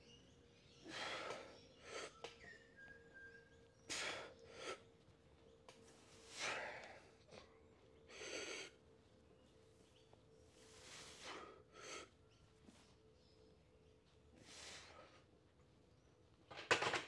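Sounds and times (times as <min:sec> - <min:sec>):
hard sharp breaths: 0:00.8 - 0:02.4, 0:03.9 - 0:05.0, 0:05.8 - 0:08.9, 0:10.6 - 0:12.2, 0:14.3 - 0:15.4.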